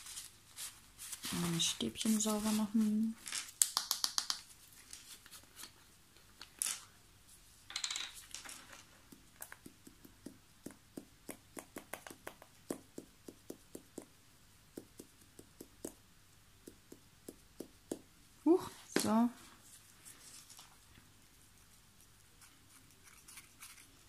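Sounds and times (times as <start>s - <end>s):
wiping rustle: 0.0s - 3.2s.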